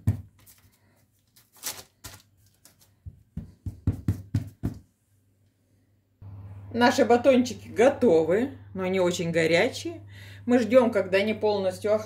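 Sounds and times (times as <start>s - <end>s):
baking paper rustling: 0.0s - 3.1s
hands patting food mixture: 2.6s - 4.9s.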